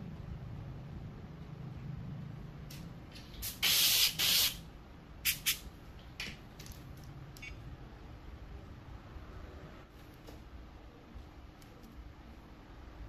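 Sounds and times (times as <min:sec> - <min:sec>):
air syringe hissing blasts: 0:03.4 - 0:04.6.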